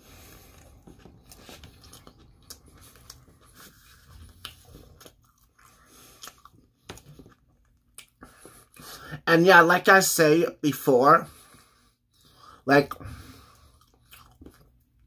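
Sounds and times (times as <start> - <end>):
pizza chewing crunches: 0.1 - 8.9, 13.4 - 15.0.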